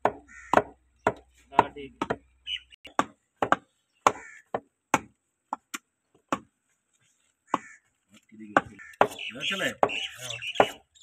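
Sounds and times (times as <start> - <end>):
cleaver chopping on wooden block: 0.0 - 2.3, 2.9 - 6.5, 8.5 - 10.9.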